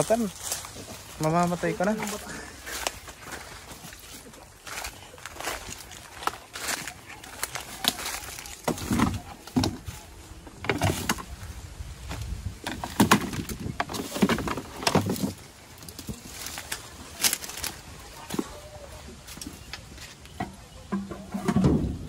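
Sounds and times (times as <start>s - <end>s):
knocks clicks and rustling: 12.6s - 16.2s.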